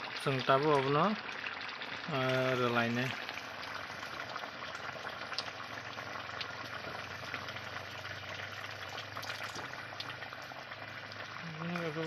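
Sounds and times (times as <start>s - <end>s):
curry bubbling in a pan: 0.0s - 12.0s
liquid pouring into boiling curry: 0.0s - 12.0s
small crackly pops: 4.7s - 5.6s.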